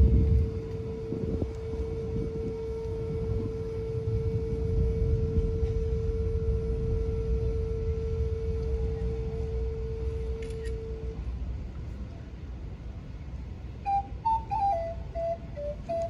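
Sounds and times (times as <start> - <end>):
wind instrument long note: 0.0 - 11.2
low rumble: 0.0 - 16.0.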